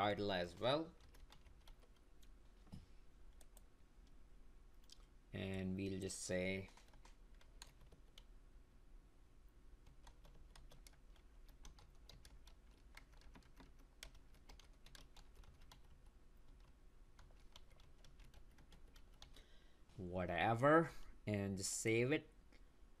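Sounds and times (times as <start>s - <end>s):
typing on keyboard: 0.9s - 2.3s, 6.6s - 8.3s, 9.8s - 19.4s.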